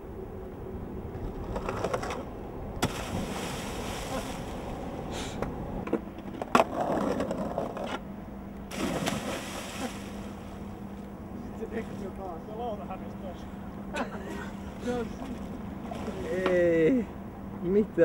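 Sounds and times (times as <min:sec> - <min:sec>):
skateboard rolling on stone: 0:01.2 - 0:02.4, 0:05.8 - 0:08.0
water splashing: 0:02.8 - 0:05.1, 0:08.7 - 0:10.7.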